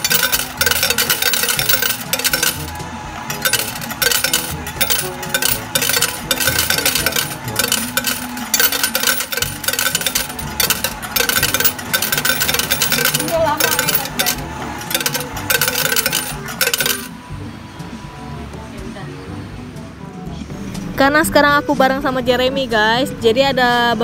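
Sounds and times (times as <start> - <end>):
coins clattering into metal tray: 0.0 - 17.1.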